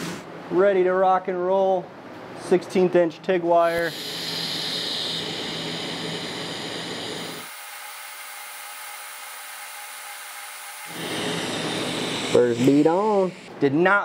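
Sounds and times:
faint hum: 0.0s - 7.5s
welding arc hiss: 3.6s - 13.6s.

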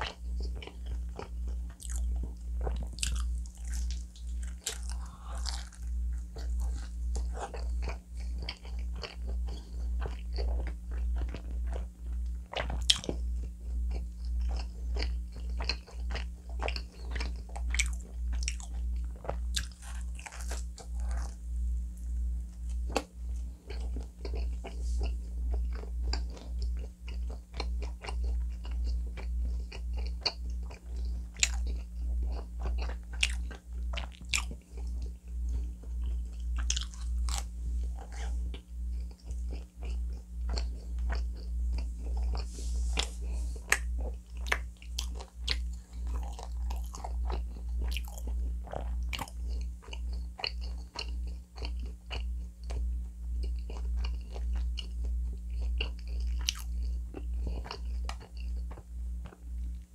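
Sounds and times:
chewing pizza: 0.0s - 21.4s, 22.5s - 59.9s.

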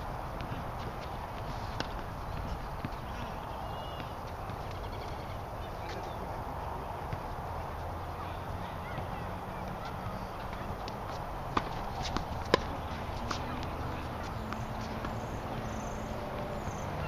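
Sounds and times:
low background noise: 0.0s - 17.0s
tennis balls struck by rackets: 0.3s - 5.2s, 8.8s - 16.7s.

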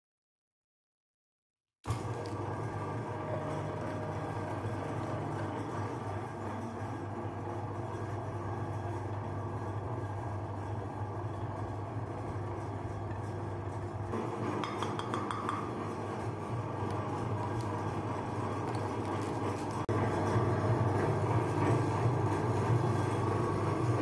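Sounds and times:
meat grinder motor humming: 1.9s - 24.0s.

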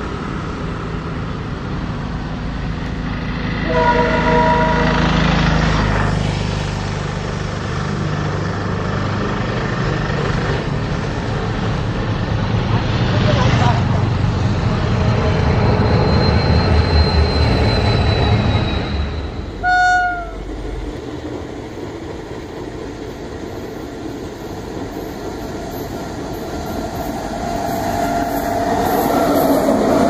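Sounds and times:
diesel locomotive engine rumbling: 0.0s - 30.0s
electric locomotive humming: 0.0s - 30.0s
locomotive horn blast: 3.6s - 5.1s, 19.6s - 20.5s.

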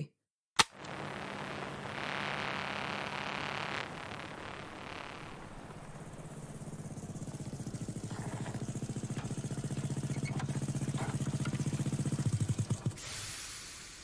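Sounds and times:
motorcycle engine approaching: 2.3s - 13.0s.

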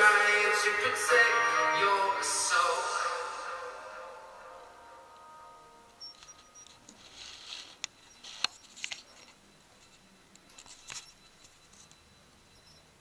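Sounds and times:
soft rustling: 6.2s - 11.9s.

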